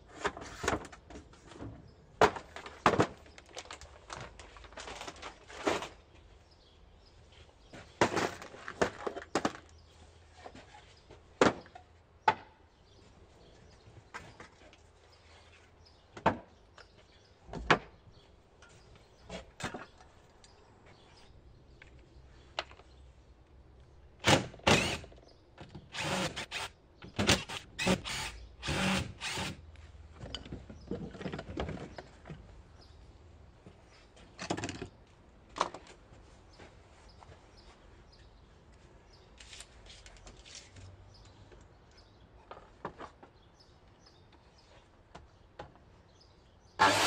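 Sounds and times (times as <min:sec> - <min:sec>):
wooden boards and tools clattering: 0:00.1 - 0:06.0, 0:07.8 - 0:09.7, 0:18.6 - 0:20.2, 0:30.2 - 0:32.5, 0:46.8 - 0:47.0.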